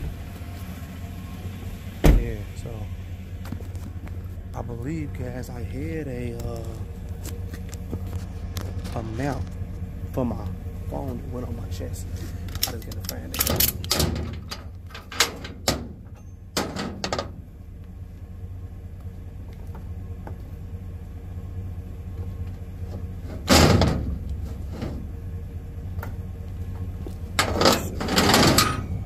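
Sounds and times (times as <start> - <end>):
steady low hum: 0.0 - 29.0
vehicle door shutting: 1.8 - 2.5, 12.5 - 17.4, 22.9 - 25.1, 26.8 - 29.0.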